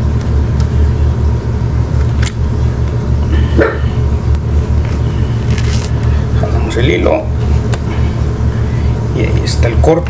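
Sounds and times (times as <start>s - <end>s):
steady low hum: 0.0s - 10.0s
fingers clicking and rustling vinyl: 4.8s - 6.2s.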